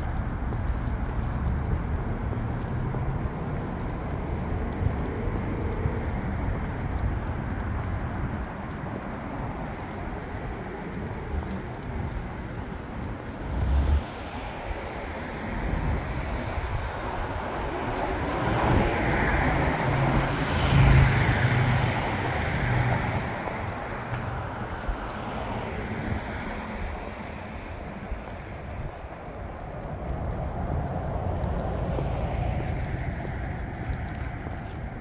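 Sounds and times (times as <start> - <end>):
car passing by: 11.2 - 28.9, 29.9 - 35.0.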